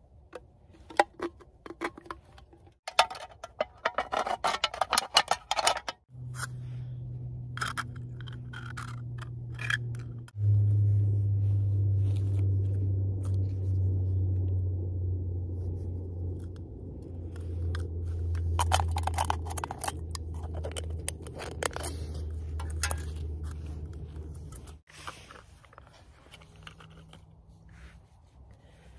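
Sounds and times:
scraping and crinkling metal can: 0.7s - 6.6s, 7.5s - 10.4s, 17.3s - 27.4s
steady low hum: 6.1s - 24.9s.

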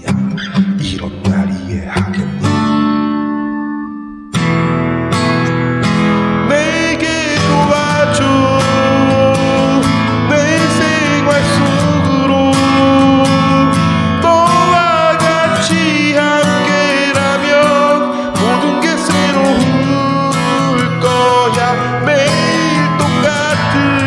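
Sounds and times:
acoustic guitar strumming chords: 0.0s - 24.0s
wavering melody line: 8.4s - 23.7s.

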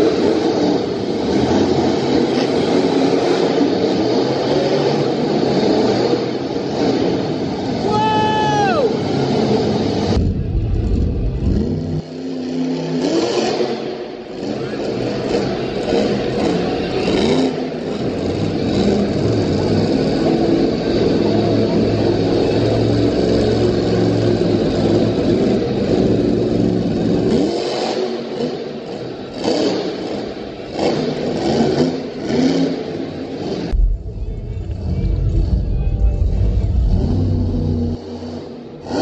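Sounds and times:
monster truck engines revving: 0.0s - 39.0s.

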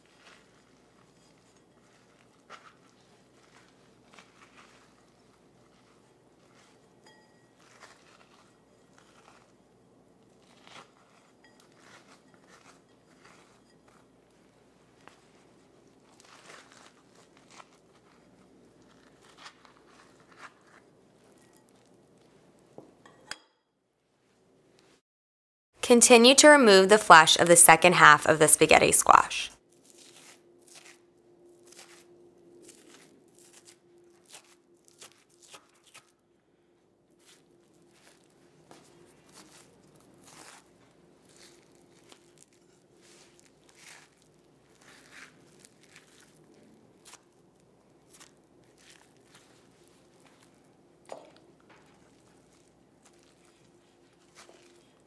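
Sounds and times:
metal spoon scraping squash: 0.0s - 21.9s, 29.8s - 36.1s, 37.2s - 46.2s.

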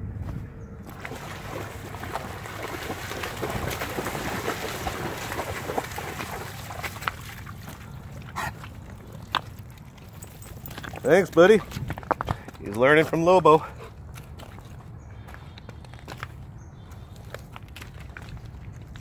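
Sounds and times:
dog splashing through water: 0.9s - 12.0s.

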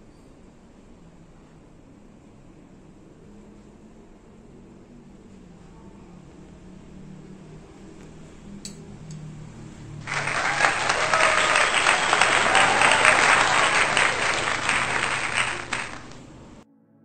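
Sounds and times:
crowd applause: 10.0s - 16.6s
crowd cheering: 10.0s - 16.6s.

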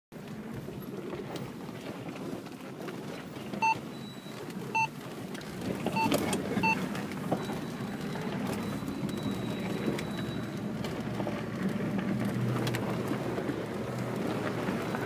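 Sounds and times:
tyre and engine rumble: 0.2s - 15.0s
short electronic beeps: 3.6s - 4.9s, 6.0s - 6.8s, 7.4s - 10.6s.

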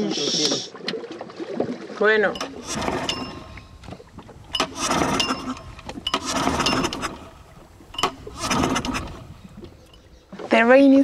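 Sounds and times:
outboard motor turning over: 2.3s - 11.0s.

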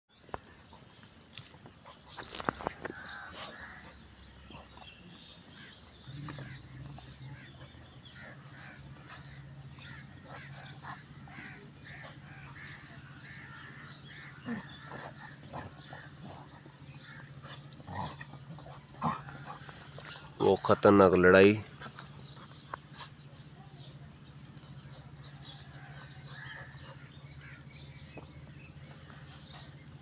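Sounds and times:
birds chirping: 0.1s - 30.0s
steady low hum: 0.2s - 30.0s
crows cawing: 25.8s - 27.9s.

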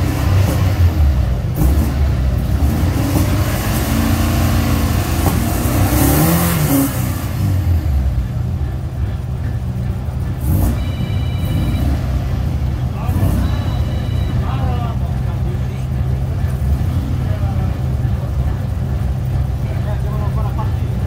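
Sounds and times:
race car engine revving: 0.0s - 21.0s
electronic beep: 10.6s - 12.2s, 13.2s - 14.8s.

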